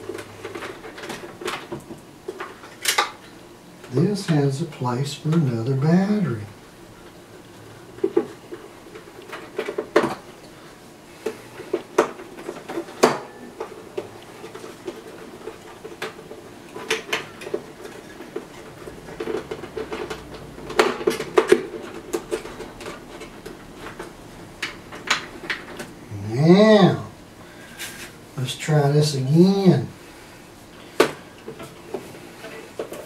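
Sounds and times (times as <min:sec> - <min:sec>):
batteries and plastic parts rattling: 0:00.0 - 0:03.2, 0:11.2 - 0:26.0.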